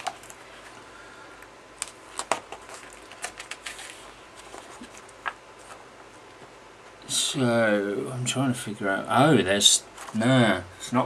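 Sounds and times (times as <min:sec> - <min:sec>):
magazine pages rustling: 0:00.0 - 0:00.8, 0:01.8 - 0:06.5.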